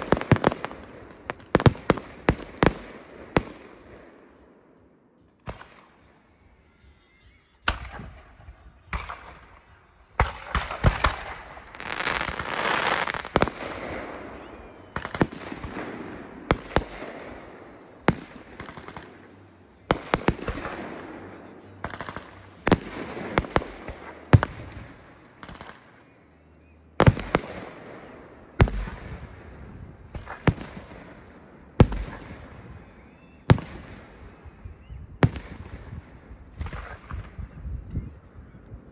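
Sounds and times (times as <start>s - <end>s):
fireworks crackling: 0.0s - 3.9s, 10.5s - 26.1s
fireworks bursting with bangs: 0.0s - 4.5s, 10.2s - 26.1s, 27.0s - 34.5s.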